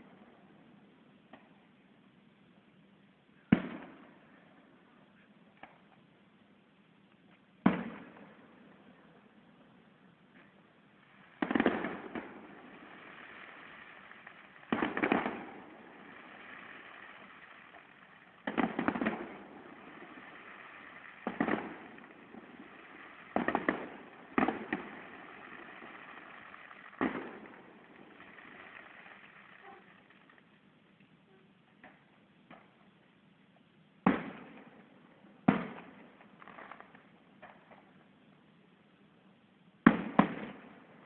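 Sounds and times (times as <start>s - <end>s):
firework pops: 1.3s - 1.6s, 3.5s - 4.0s, 5.5s - 6.0s, 7.2s - 8.4s, 10.3s - 31.2s, 31.8s - 32.8s, 34.0s - 34.7s, 35.5s - 38.0s, 39.8s - 40.7s
distant firework bursts: 3.4s - 5.0s, 7.6s - 31.0s, 34.0s - 38.0s, 39.8s - 41.0s.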